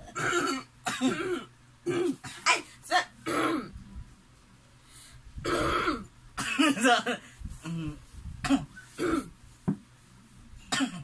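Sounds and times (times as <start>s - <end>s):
person clearing throat: 0.0s - 3.8s, 5.4s - 9.3s, 10.7s - 11.0s.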